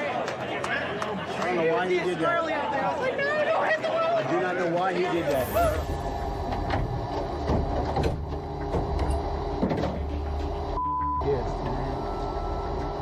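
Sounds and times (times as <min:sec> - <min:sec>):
steady bleep: 0:10.8 - 0:13.0.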